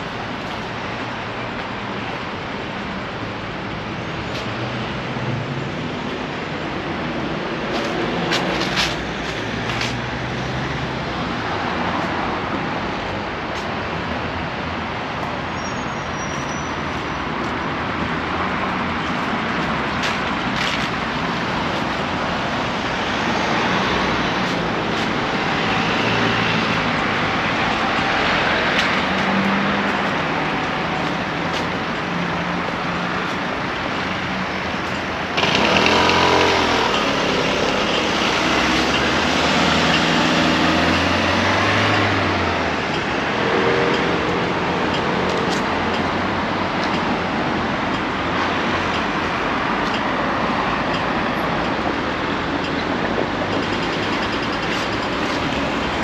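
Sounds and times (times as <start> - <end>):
cars passing on busy street: 0.0 - 56.0
vehicle passing close by: 35.2 - 45.8.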